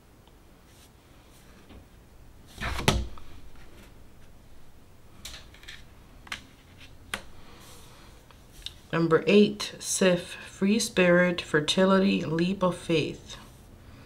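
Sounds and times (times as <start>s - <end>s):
cards tapping and scraping: 5.2s - 7.4s.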